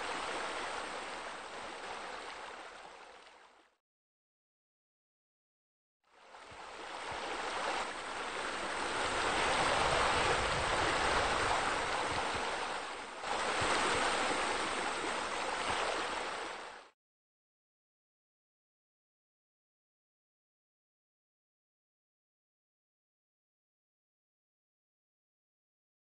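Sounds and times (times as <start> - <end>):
rushing splashing water: 0.0 - 3.6, 6.5 - 16.9.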